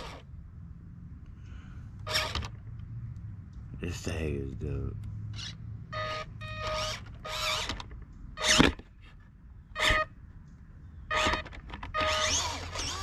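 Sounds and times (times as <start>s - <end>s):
electric motor whining: 0.0s - 0.3s, 5.4s - 8.8s, 9.8s - 10.1s, 11.1s - 13.0s.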